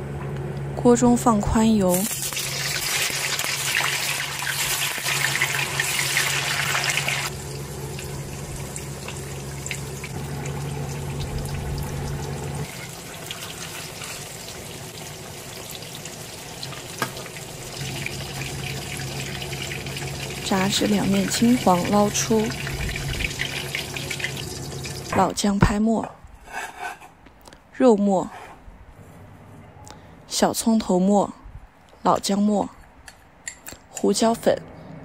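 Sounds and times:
food sizzling in hot oil: 1.9s - 25.2s.

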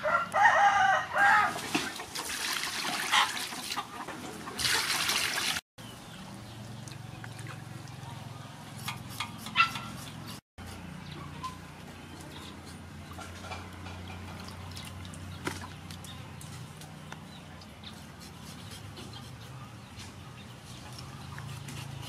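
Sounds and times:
water drips and splashes: 1.5s - 5.6s, 6.6s - 8.3s, 13.7s - 17.8s
knife scraping fish: 17.9s - 19.6s, 21.3s - 22.0s.

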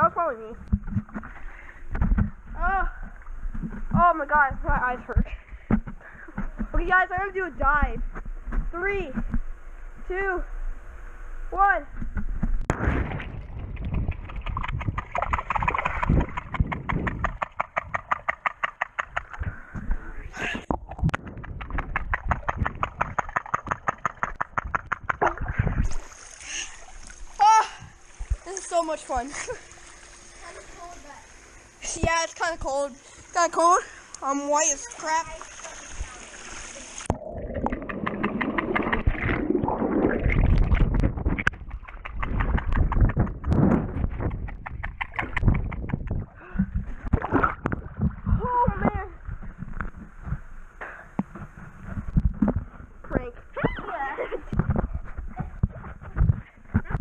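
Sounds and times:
muffled underwater splashing and bubbles: 12.0s - 50.6s.

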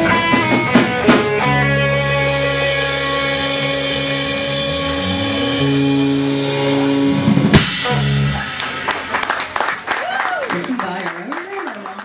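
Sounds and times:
live rock band playing: 0.0s - 12.0s
people clapping: 8.3s - 12.0s.

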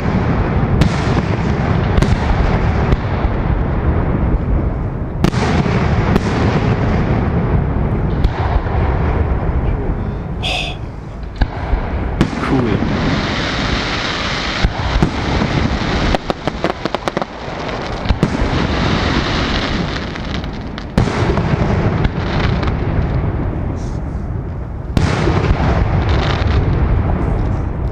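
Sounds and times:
sharp firework cracks: 0.0s - 9.5s, 10.5s - 27.9s
fireworks bursting and banging: 0.0s - 27.9s.

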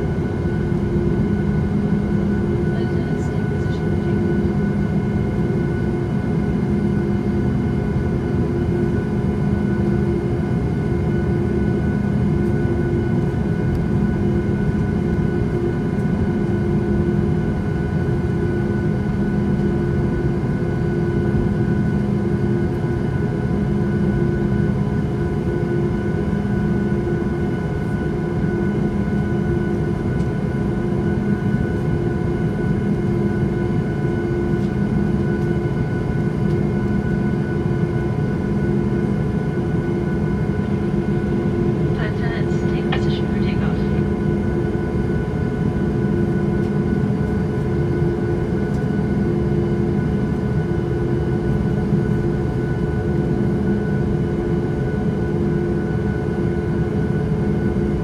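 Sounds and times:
airliner cabin drone: 0.0s - 58.0s.

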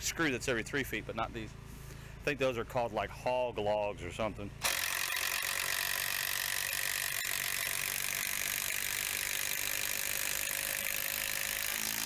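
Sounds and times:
impact driver driving screw into log: 4.6s - 12.0s.

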